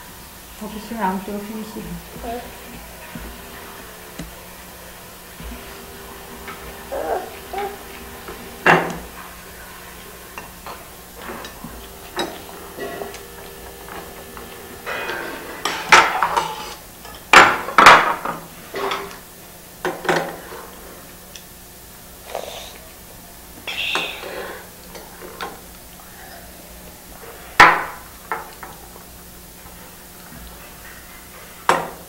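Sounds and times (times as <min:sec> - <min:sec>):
dishes and cutlery clinking: 0:10.3 - 0:19.2.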